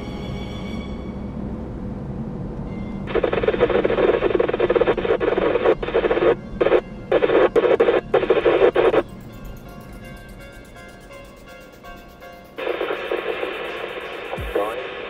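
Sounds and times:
radio hiss and crackle: 3.1s - 9.0s, 12.6s - 15.0s.

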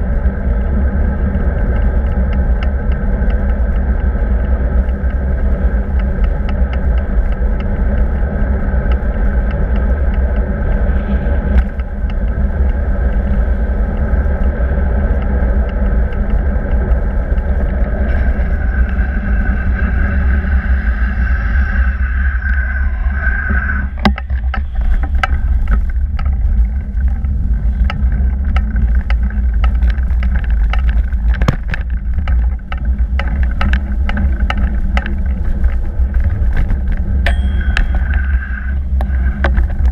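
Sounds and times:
bicycle tyre and road rumble: 0.0s - 39.9s
high whine: 0.0s - 39.9s
wind buffeting microphone: 0.0s - 39.9s
small knocks and rattles: 24.0s - 38.4s.

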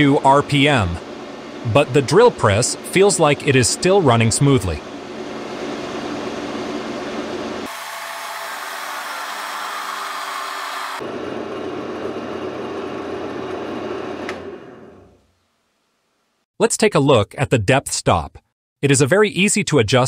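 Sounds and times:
drill press motor running: 7.6s - 15.1s.

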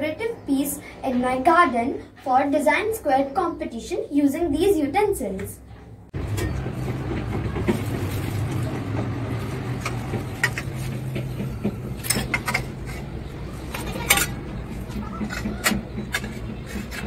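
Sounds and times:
metal utensils clinking: 9.7s - 11.0s, 12.0s - 17.0s.

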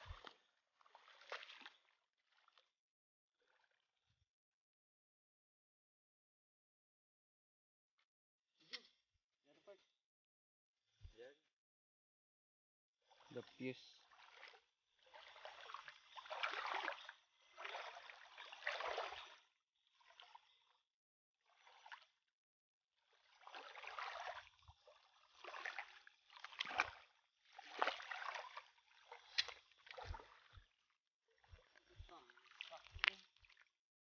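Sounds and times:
feet splashing through water: 0.0s - 2.7s, 14.0s - 20.4s, 23.1s - 30.8s, 31.4s - 33.7s.

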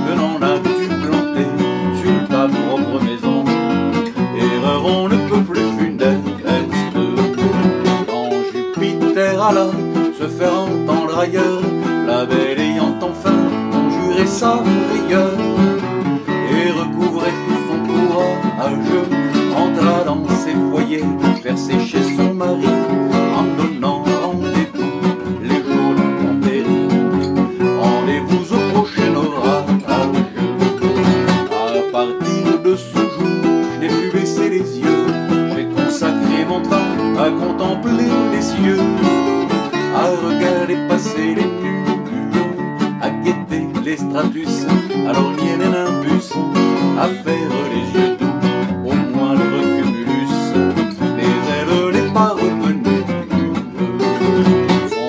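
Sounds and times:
acoustic guitar lead melody: 0.0s - 55.0s
acoustic guitar strumming rhythm: 0.0s - 55.0s.

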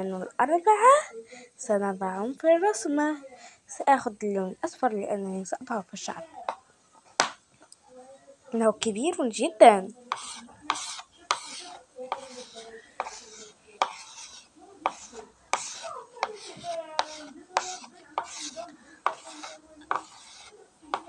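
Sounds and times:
chalk scratching on chalkboard: 10.1s - 21.0s.

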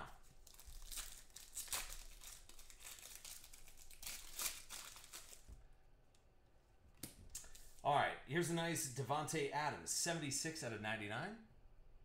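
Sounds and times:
foil wrapper tearing and crinkling: 0.3s - 5.5s.

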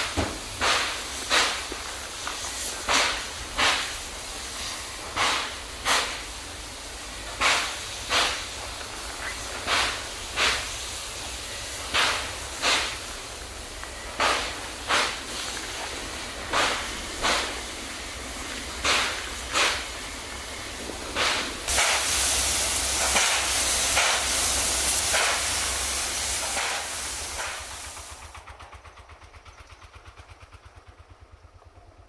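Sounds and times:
sharp puffs of steam: 0.0s - 31.6s
steam locomotive hissing: 0.0s - 31.6s.

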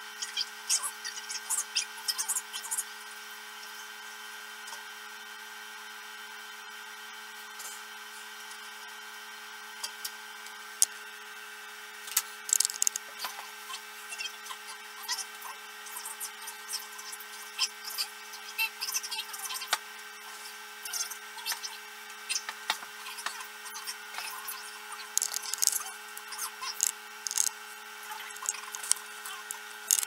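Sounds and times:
steady hum: 12.4s - 13.1s, 25.1s - 30.0s
plug connectors clicking: 12.5s - 13.0s, 25.2s - 25.8s, 26.8s - 27.5s, 28.4s - 30.0s.

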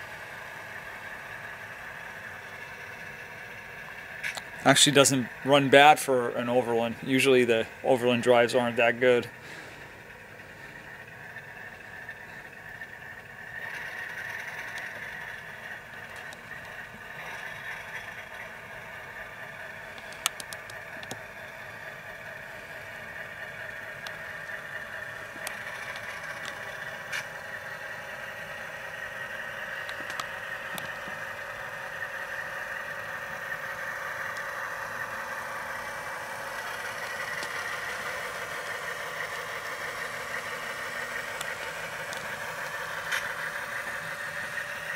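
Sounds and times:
diesel engine sound through tinny speaker: 0.0s - 44.9s
sharp clicks: 19.9s - 21.2s, 29.8s - 31.0s.

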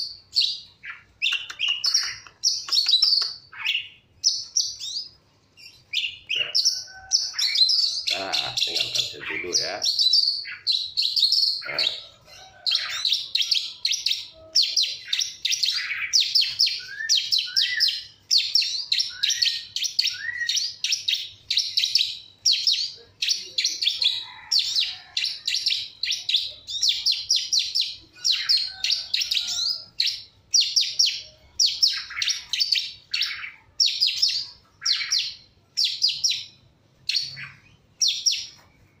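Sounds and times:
bird chirping high rapid phrases: 0.0s - 39.0s.

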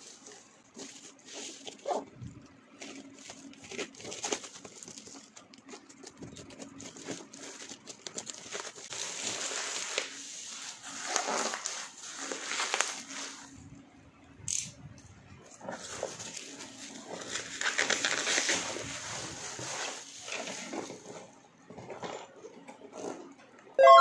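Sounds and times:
bubble-wrap mailer crinkling: 2.7s - 13.6s, 15.7s - 21.3s.

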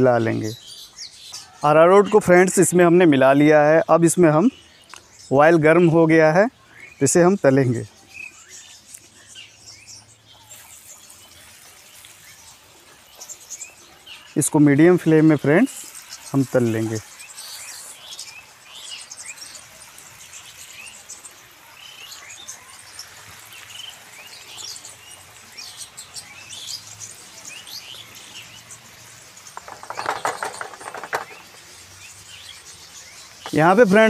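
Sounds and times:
birds chirping: 0.0s - 34.0s
potato sticks sizzling in oil: 7.6s - 34.0s
rattling burst: 29.6s - 31.6s.

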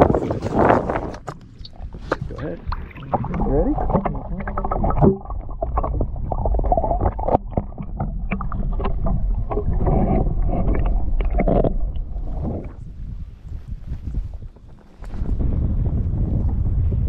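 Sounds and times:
muffled underwater water sloshing: 0.0s - 15.7s
sharp clicks and knocks: 3.3s - 12.1s.

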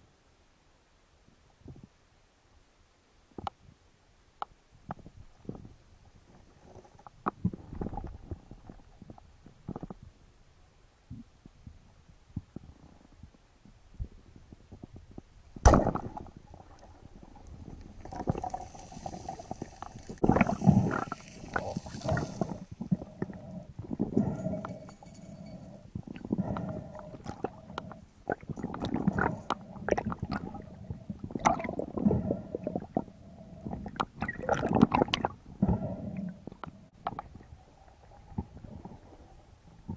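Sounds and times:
speargun firing underwater: 15.6s - 16.3s.

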